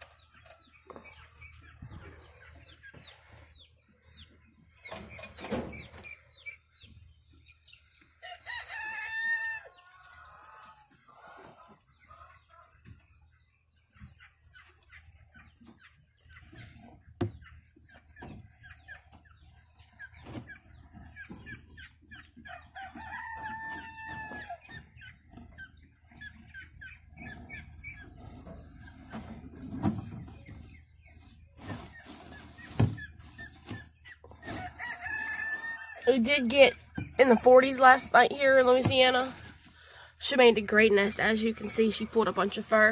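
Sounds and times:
chickens clucking: 0.0 - 42.9
hay rustling: 28.1 - 40.8
rooster crowing: 34.6 - 36.0.

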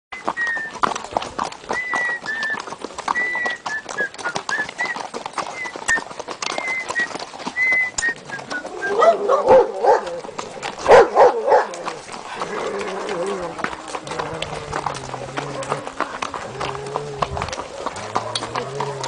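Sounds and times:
hooves clip-clopping on dirt: 0.1 - 19.0
dog barking: 9.0 - 10.2, 10.8 - 11.8.

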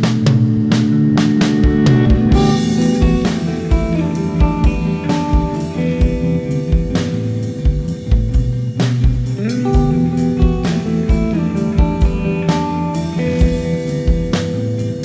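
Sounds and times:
cymbal crashes: 0.0 - 8.3
band music: 0.0 - 15.0.

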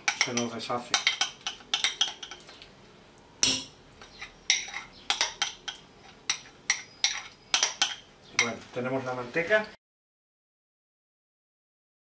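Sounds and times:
spoon scraping and clinking on metal: 0.0 - 2.5, 3.4 - 8.6.

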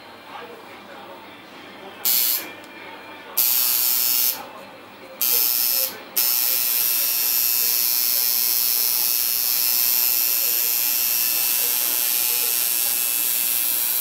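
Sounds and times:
tattoo machine buzzing: 2.0 - 2.5, 3.4 - 4.4, 5.2 - 14.0.

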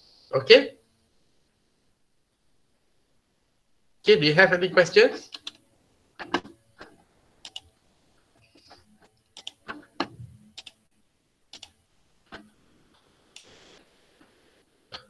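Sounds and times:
computer mouse clicks: 5.3 - 5.6, 6.2 - 7.7, 8.4 - 10.8, 11.5 - 12.6, 13.3 - 13.6
soft rush of noise: 11.8 - 15.0.

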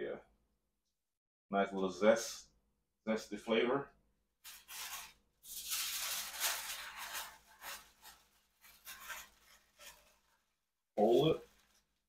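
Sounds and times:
aluminium foil crinkling: 4.4 - 12.0.

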